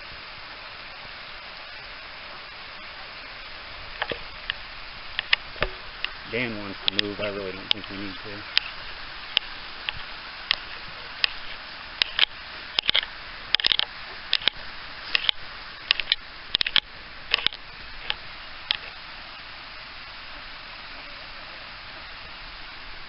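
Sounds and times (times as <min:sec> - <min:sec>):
mountain stream rushing: 0:00.0 - 0:23.0
sharp clicks and ticks: 0:06.9 - 0:08.7, 0:12.0 - 0:18.8.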